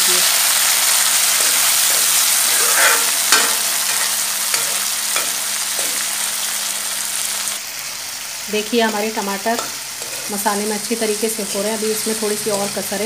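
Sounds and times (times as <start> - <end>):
vegetables sizzling in oil: 0.0 - 13.0
metal ladle scraping pan: 1.4 - 6.0, 8.9 - 10.4.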